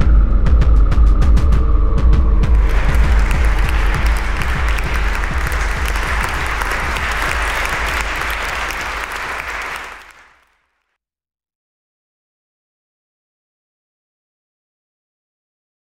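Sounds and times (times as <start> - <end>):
audience clapping: 2.5 - 10.6.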